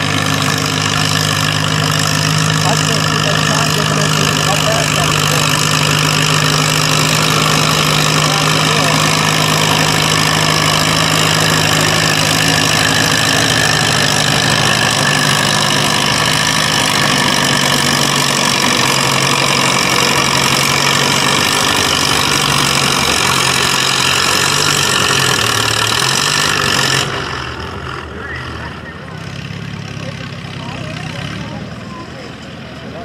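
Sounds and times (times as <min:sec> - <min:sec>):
tractor engine under load: 0:00.0 - 0:33.0.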